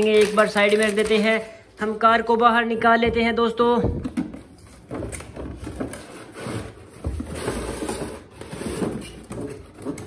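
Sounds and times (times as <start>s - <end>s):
cardboard scraping and rustling: 4.4s - 10.0s.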